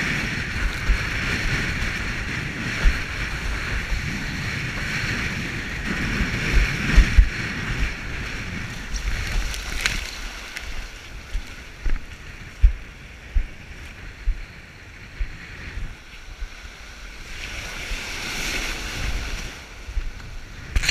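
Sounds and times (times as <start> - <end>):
surf rushing and splashing: 0.0 - 20.9
wind buffeting microphone: 0.0 - 20.9
short low thumps: 5.8 - 9.4.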